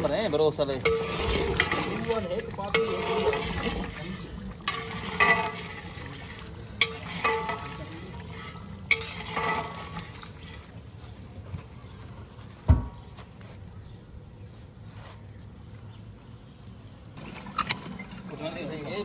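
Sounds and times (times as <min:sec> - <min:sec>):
ladle clinking against metal pot: 0:00.0 - 0:10.6
ladle stirring thick curry: 0:00.0 - 0:12.6.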